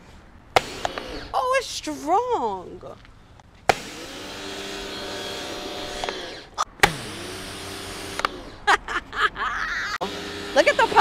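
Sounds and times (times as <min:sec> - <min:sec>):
pressure washer running: 0:03.7 - 0:08.4, 0:10.0 - 0:11.0.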